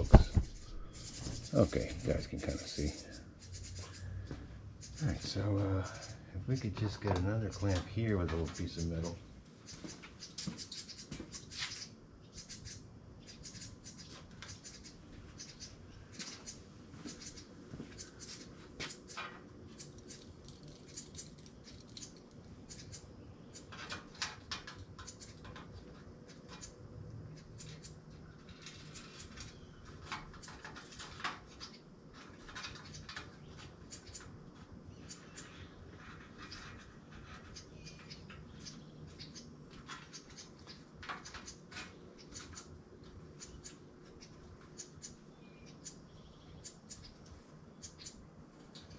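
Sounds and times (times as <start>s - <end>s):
steady low hum: 0.0s - 48.9s
small metal parts clicking: 19.8s - 22.5s.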